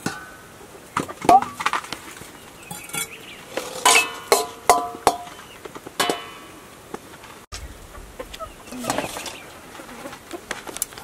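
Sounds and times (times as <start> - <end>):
metal utensils clinking on pot: 2.7 - 5.4.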